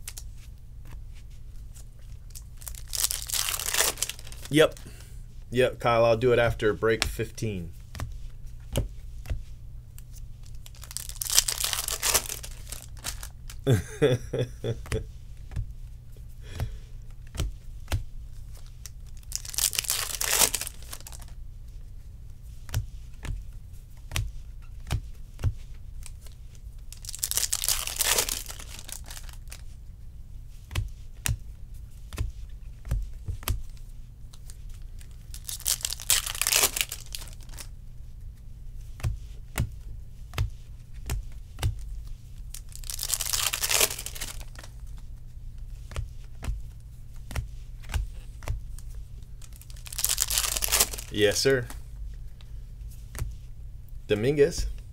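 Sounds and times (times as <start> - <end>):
foil wrapper tearing: 2.3 - 4.8, 10.5 - 13.7, 19.1 - 21.3, 26.9 - 29.6, 35.0 - 37.7, 42.5 - 44.6, 49.4 - 51.6
cards tapping and sliding: 45.7 - 48.7.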